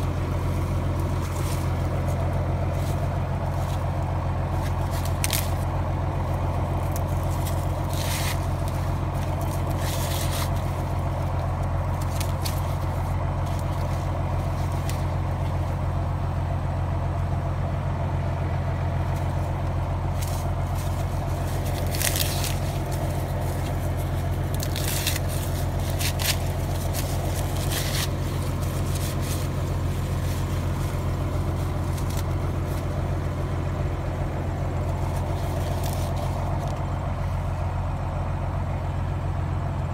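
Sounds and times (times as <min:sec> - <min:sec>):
corn leaves rustling: 0:00.0 - 0:17.3, 0:18.1 - 0:38.8
tractor engine low hum: 0:00.0 - 0:39.9.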